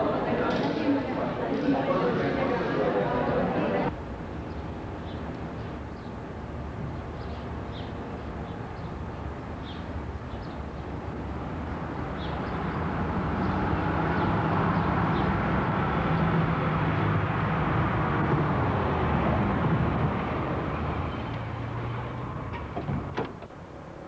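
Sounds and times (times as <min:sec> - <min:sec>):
car engine approaching: 0:11.9 - 0:23.2.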